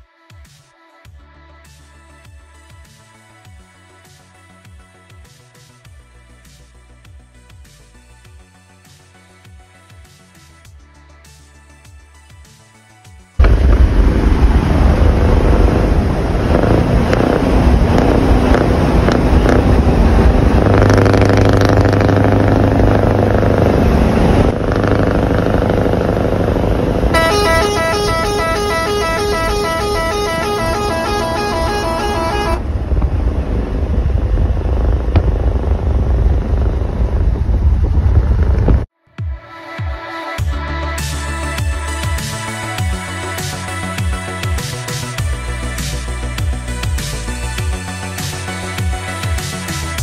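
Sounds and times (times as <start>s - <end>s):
pulsing truck horn: 13.4s - 32.8s
diesel truck rumbling: 13.4s - 38.9s.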